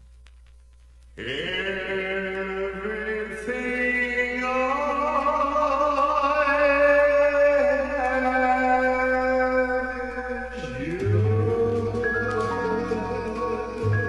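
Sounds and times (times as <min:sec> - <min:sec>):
dark ambient drone music: 0:08.9 - 0:14.0.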